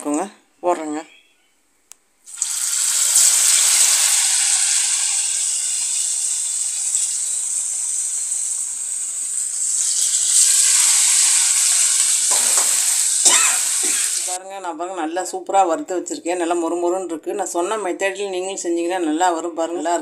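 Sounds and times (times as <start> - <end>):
fish sizzling in hot oil: 2.3 - 14.4.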